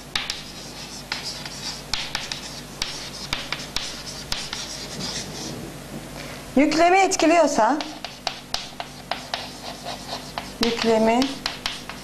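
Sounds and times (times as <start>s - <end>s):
chalk tapping on board: 0.1s - 5.5s, 7.8s - 12.0s
chalk scratching on blackboard: 0.2s - 5.6s, 7.8s - 12.0s.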